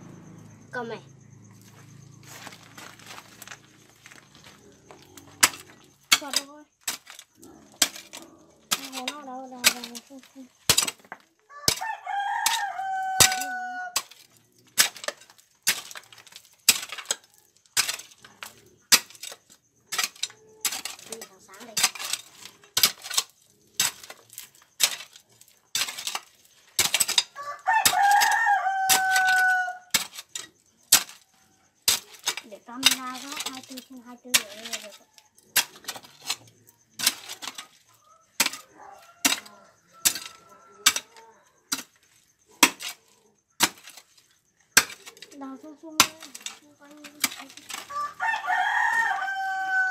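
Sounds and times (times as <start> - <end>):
loose dirt and stones rattling: 0.0 - 49.9
soil and pebbles scraping: 0.0 - 49.9
hoe chopping into gravelly soil: 17.8 - 31.2, 38.4 - 42.0, 42.6 - 43.0, 43.6 - 44.2.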